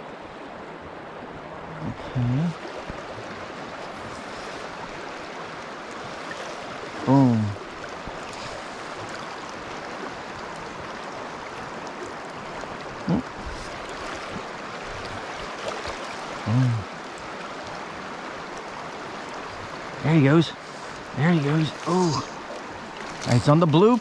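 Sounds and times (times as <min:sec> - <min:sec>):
river current rushing: 0:00.0 - 0:24.0
man humming: 0:13.0 - 0:13.3, 0:16.5 - 0:16.9, 0:21.8 - 0:22.4.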